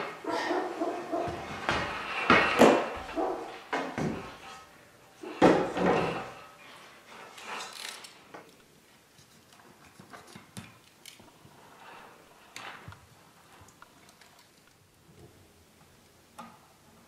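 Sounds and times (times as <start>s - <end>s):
tape rustling: 7.1s - 14.8s.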